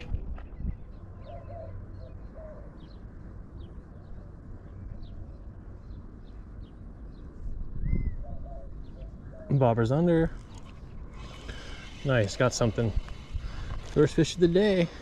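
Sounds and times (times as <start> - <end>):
small birds chirping: 0.4 - 15.0
dove cooing: 1.2 - 2.9.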